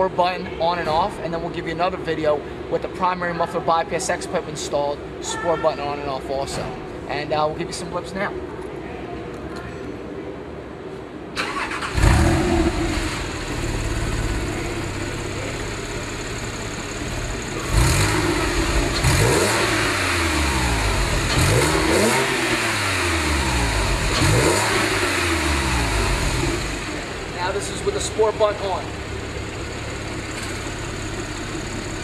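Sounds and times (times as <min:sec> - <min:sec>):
car engine idling: 0:11.4 - 0:32.0
car engine throttle blips: 0:11.4 - 0:32.0.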